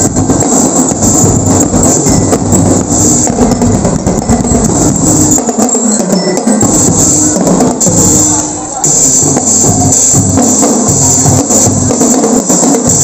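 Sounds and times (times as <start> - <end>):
loud percussion music: 0.0 - 13.0
jingling tambourine: 1.7 - 8.4.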